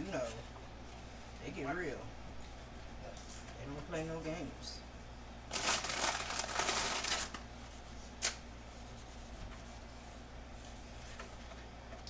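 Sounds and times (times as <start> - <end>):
plastic packaging crinkling: 5.5 - 7.4.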